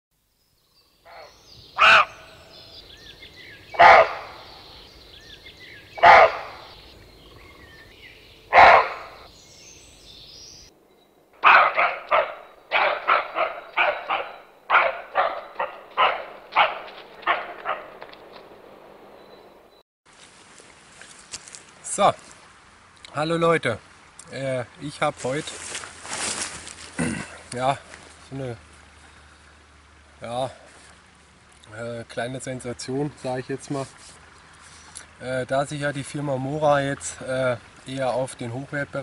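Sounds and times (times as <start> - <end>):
animal barking: 1.0 - 2.7, 3.7 - 4.9, 5.9 - 7.6, 8.5 - 9.3, 11.4 - 18.5.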